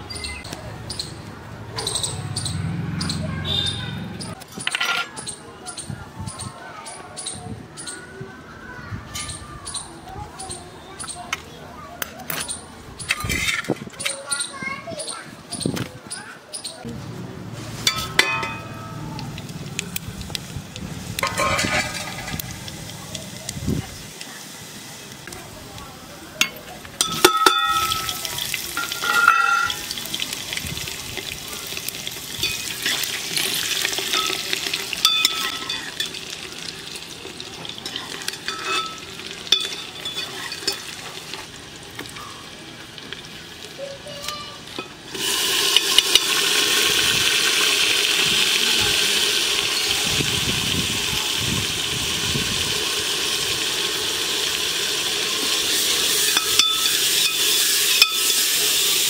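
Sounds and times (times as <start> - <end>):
onions sizzling loudly: 17.4 - 59.0
hot oil sizzling in a pot: 17.6 - 59.0
metal ladle clinking on pot: 17.8 - 19.0, 21.2 - 22.5, 26.4 - 29.9, 34.0 - 36.2, 37.8 - 41.0, 56.2 - 58.4.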